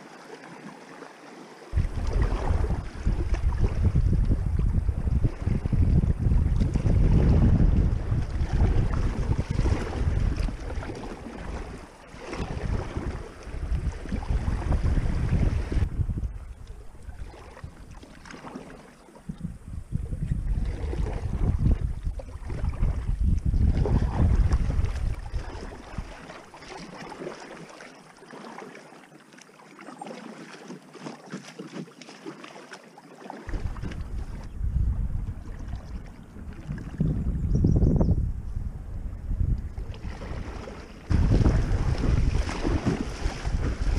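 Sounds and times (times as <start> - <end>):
paddle splashes: 0.0 - 37.3, 39.0 - 43.9
wind rumbling on microphone: 1.7 - 26.5, 33.4 - 43.9
creek water rushing: 39.9 - 43.9.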